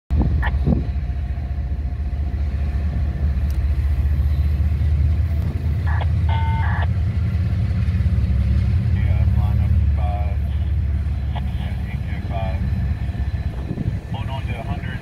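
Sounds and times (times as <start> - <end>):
low engine rumble: 0.1 - 15.0
chord of high tones: 5.9 - 6.9.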